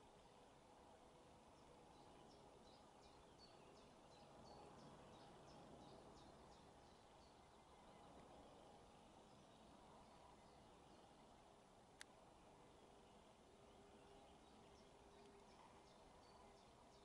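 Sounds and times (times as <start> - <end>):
bird chirping: 1.5 - 8.7, 13.0 - 17.0.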